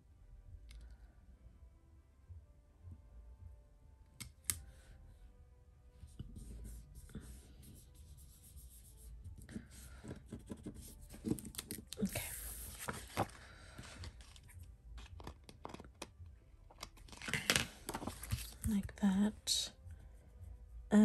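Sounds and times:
paper page rustling on table: 9.7 - 16.1, 16.8 - 18.7.

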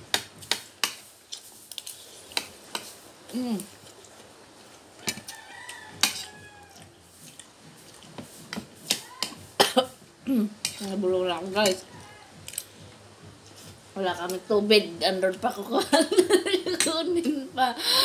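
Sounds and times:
rooster crowing: 5.0 - 7.0.

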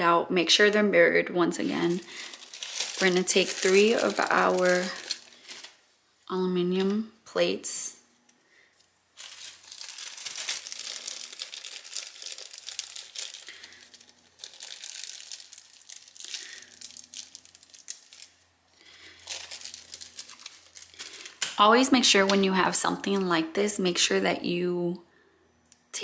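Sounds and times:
plastic film peeling and crinkling: 1.6 - 5.9, 9.2 - 22.4.

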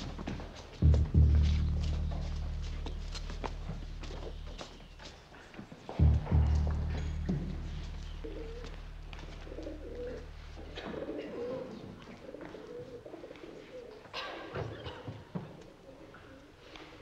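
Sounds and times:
knocks: 0.8 - 4.3
pigeons cooing: 8.2 - 14.1.

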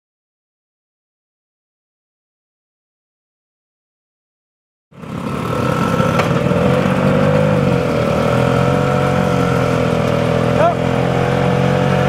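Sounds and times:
motor scooter engine running: 5.0 - 12.0.

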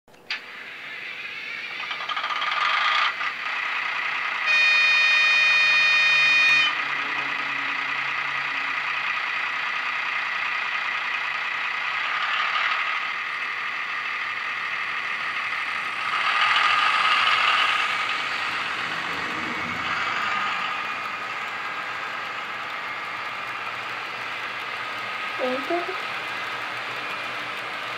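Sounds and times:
model locomotive engine sound: 0.1 - 27.9
locomotive horn: 4.4 - 8.7.

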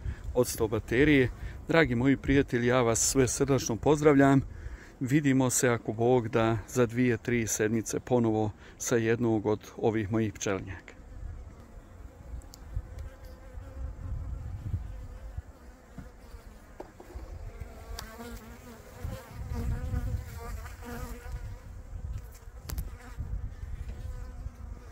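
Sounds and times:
honeybees buzzing: 10.4 - 24.9.

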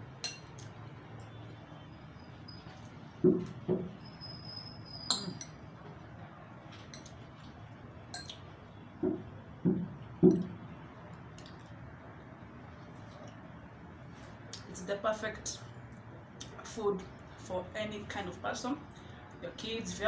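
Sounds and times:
metal spoon clinking on ceramic bowl: 0.2 - 0.6, 5.1 - 5.6, 8.1 - 8.4
dull knocks: 3.2 - 3.9, 9.0 - 10.4.

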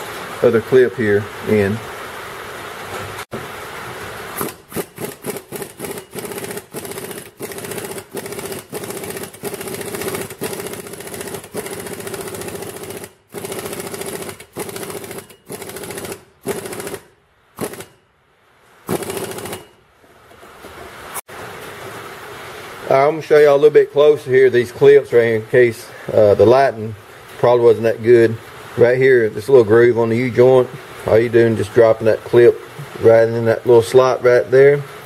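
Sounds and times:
power tool buzzing in bursts: 4.4 - 18.0, 18.9 - 19.8.

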